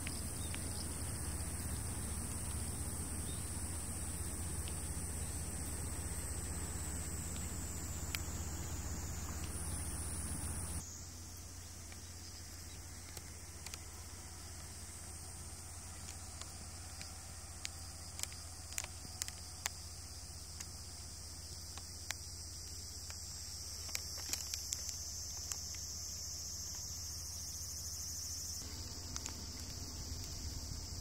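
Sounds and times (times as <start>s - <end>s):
insects buzzing: 0.0s - 31.0s
faint clicks: 13.0s - 13.9s, 16.0s - 19.9s, 21.7s - 26.0s, 29.0s - 30.6s.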